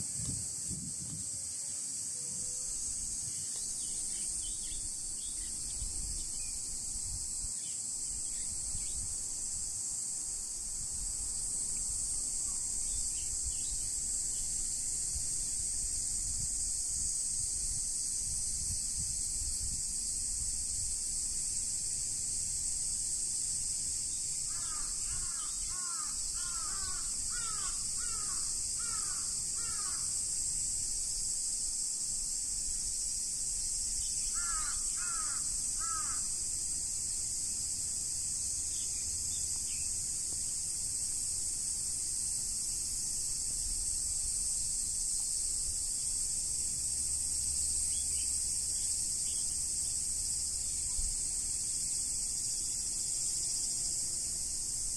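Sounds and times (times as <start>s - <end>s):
high-pitched insect hiss: 0.0s - 54.9s
crow cawing: 24.5s - 30.1s, 34.4s - 36.3s.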